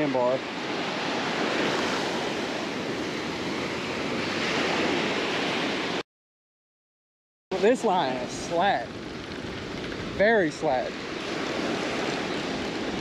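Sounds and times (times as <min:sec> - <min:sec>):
surf breaking on beach: 0:07.5 - 0:13.0.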